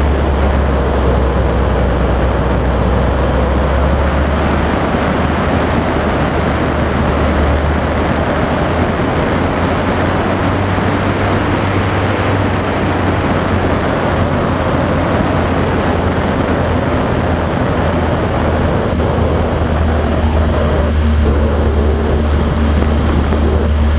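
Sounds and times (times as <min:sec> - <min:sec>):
wind rushing over camera: 0:00.0 - 0:23.9.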